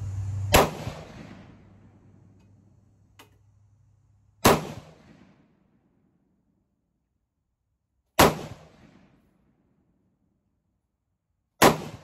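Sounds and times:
gunshots: 0.5 - 1.7, 4.4 - 5.4, 8.2 - 9.2, 11.6 - 12.0.

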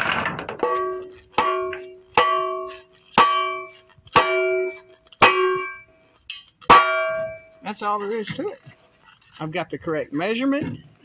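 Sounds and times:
steel shovel head clanging: 0.0 - 8.7.

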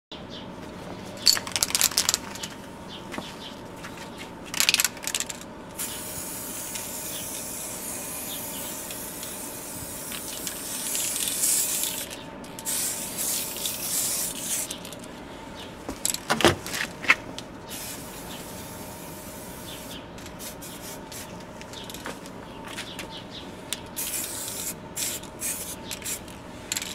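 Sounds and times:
spray paint can hissing: 4.6 - 15.0, 17.7 - 22.0, 24.0 - 26.9.

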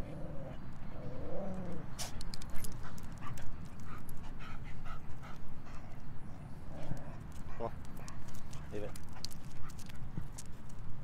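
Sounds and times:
dogs panting: 2.0 - 10.5.

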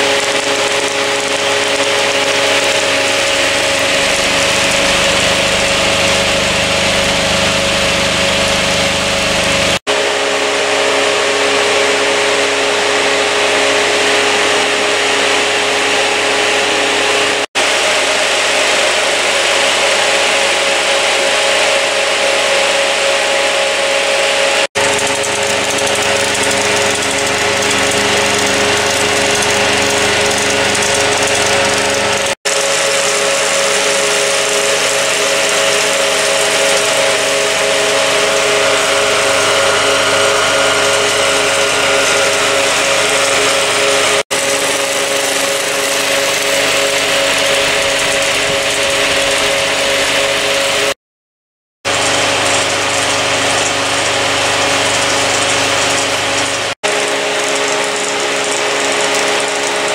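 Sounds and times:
film projector mechanical whir: 0.0 - 10.7, 24.7 - 50.9, 51.9 - 59.9.

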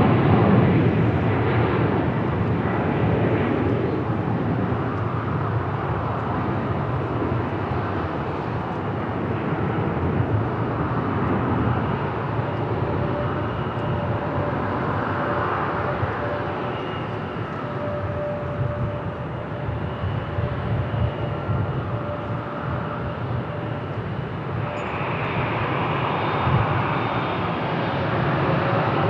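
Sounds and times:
jet engine roar: 0.0 - 29.0
faint steady whine: 10.0 - 28.3.

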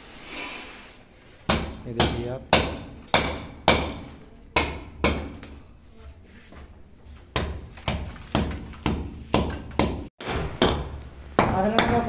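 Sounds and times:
hammer chipping concrete: 7.4 - 12.0.

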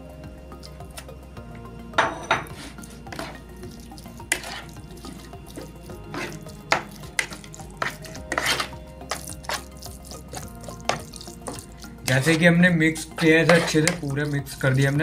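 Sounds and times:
metal spoon scraping plastic bowl: 2.1 - 3.4, 4.2 - 15.0.

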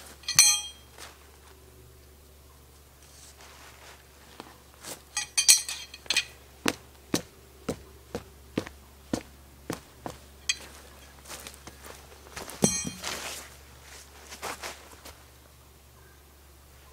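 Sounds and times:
metal tent stakes clinking: 0.0 - 1.1, 4.8 - 7.8, 9.7 - 13.6.

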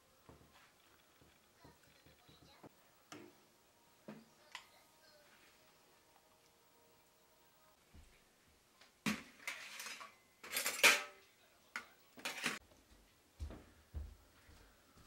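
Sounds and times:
dishes and spoons clattering: 9.1 - 11.2, 11.8 - 12.6.

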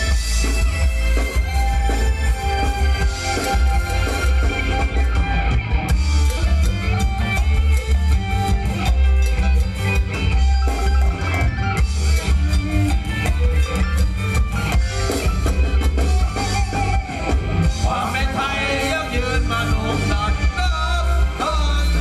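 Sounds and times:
drum kit beat: 0.0 - 22.0
electric guitar: 0.0 - 22.0
heavy bass: 0.0 - 22.0.

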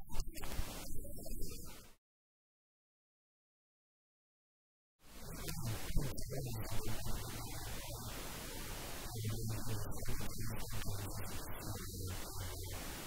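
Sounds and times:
static hiss: 0.0 - 2.0, 5.0 - 13.0.

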